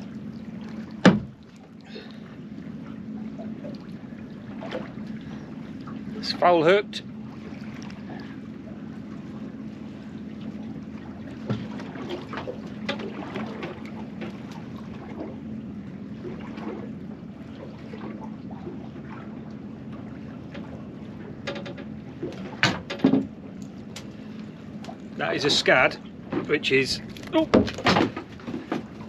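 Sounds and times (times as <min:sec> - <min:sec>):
boat engine humming: 0:00.0 - 0:29.0
fishing tackle clicks and knocks: 0:21.4 - 0:23.3.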